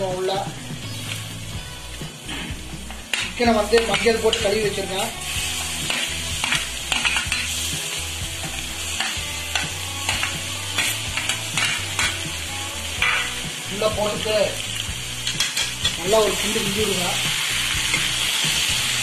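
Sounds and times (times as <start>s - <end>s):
onions sizzling in hot oil: 0.0s - 19.0s
metal spoon clinking and scraping: 3.0s - 4.6s, 5.3s - 7.6s, 8.5s - 12.2s, 15.2s - 16.0s.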